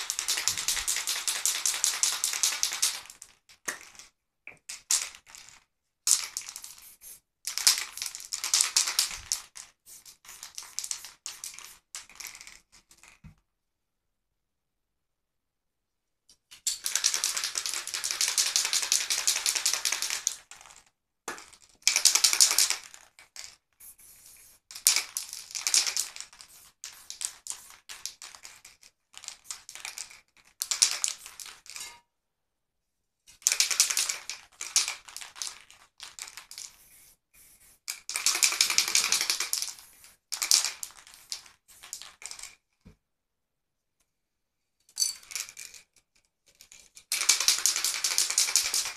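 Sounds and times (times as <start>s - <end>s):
spray-paint can hissing: 6.6s - 7.2s, 9.8s - 11.8s, 25.8s - 27.8s.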